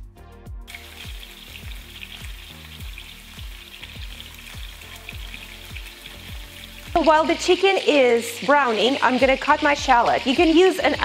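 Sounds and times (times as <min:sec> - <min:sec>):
background music beat: 0:00.0 - 0:08.0
meat sizzling in a frying pan: 0:00.7 - 0:11.0.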